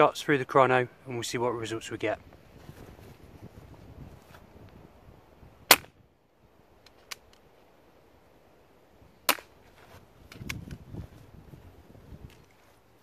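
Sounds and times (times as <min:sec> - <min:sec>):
air pistol shots: 0:05.7 - 0:06.0.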